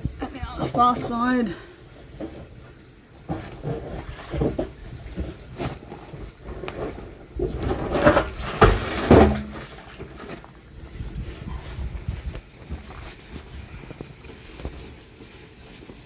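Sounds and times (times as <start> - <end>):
thumps and scraping of drum: 2.0 - 10.5
plastic drum scrubbed and knocked: 2.1 - 10.5.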